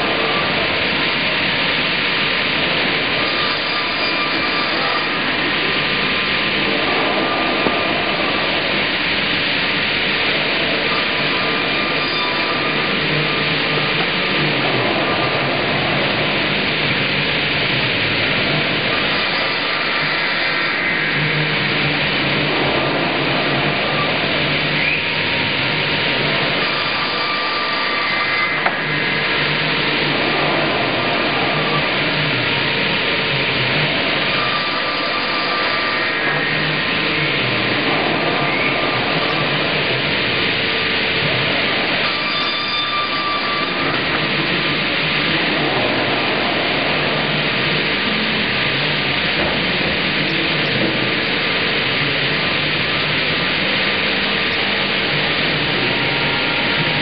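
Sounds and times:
circular sawmill cutting log: 0.0s - 57.0s.

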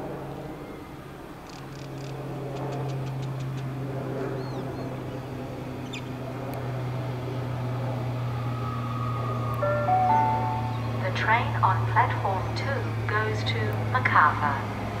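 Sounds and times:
birds chirping: 4.3s - 6.2s, 9.6s - 11.4s
electric train humming: 6.8s - 15.0s.

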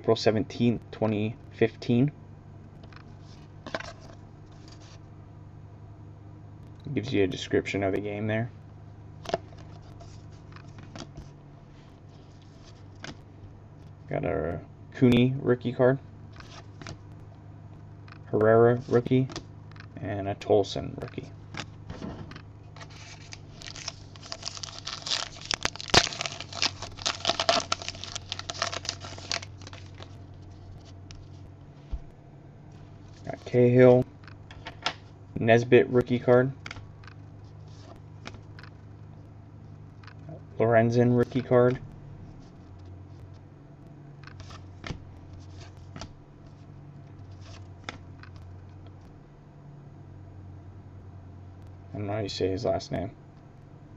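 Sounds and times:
low hum: 0.0s - 53.9s
wrapper crinkling: 22.8s - 30.9s.

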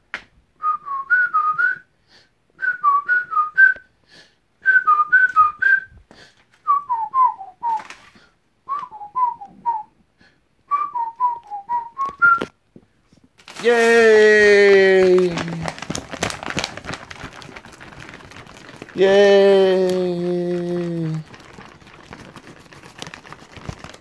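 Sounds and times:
person whistling a tune: 0.6s - 1.9s, 2.6s - 3.9s, 4.6s - 6.0s, 6.6s - 7.8s, 8.7s - 9.9s, 10.7s - 12.5s.

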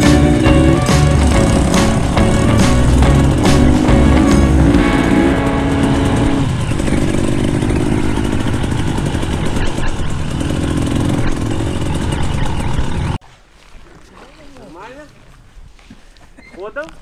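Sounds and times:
dirt bike engine revving: 0.0s - 13.2s.

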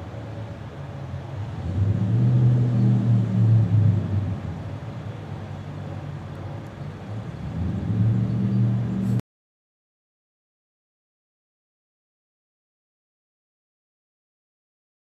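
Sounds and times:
low engine rumble: 0.0s - 9.2s.

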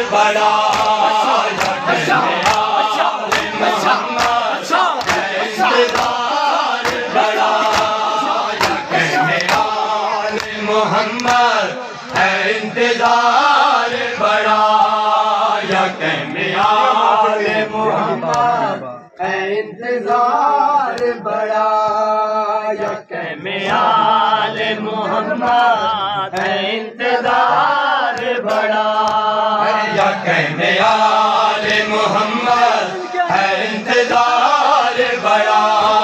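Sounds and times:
men chanting a lament: 0.0s - 36.0s.

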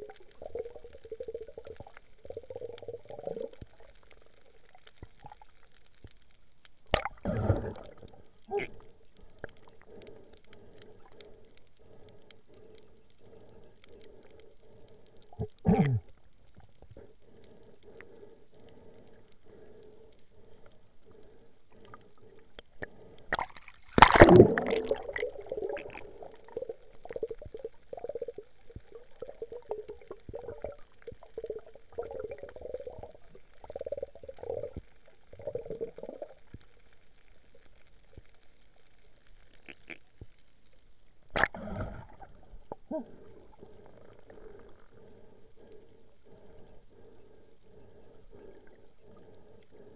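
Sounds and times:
water gurgling and bubbling: 0.0s - 3.9s, 7.0s - 8.9s, 23.4s - 36.4s.

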